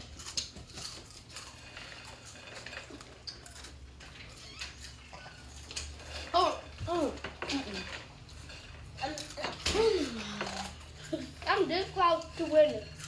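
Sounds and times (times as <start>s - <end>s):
corn chips crunching: 0.0s - 6.4s.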